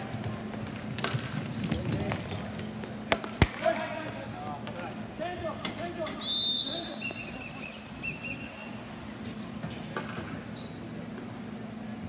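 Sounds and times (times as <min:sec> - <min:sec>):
sneakers squeaking on court: 0:00.0 - 0:03.0, 0:06.0 - 0:12.0
steady low hum: 0:02.2 - 0:12.0.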